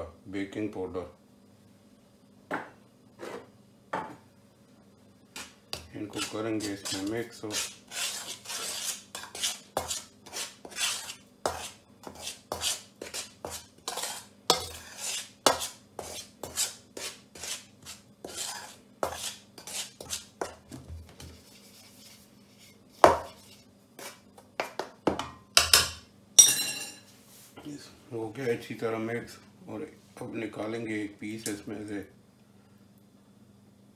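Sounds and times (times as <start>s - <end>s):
fork scraping metal bowl: 6.1s - 20.6s.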